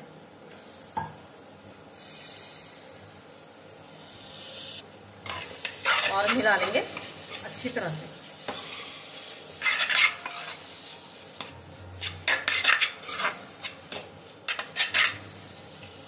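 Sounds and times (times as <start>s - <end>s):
metal spatula scraping a pan: 5.2s - 16.0s.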